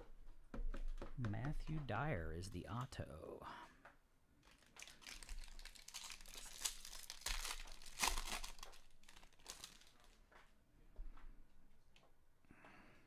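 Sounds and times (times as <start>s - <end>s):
foil wrapper crinkling and tearing: 4.4s - 10.2s.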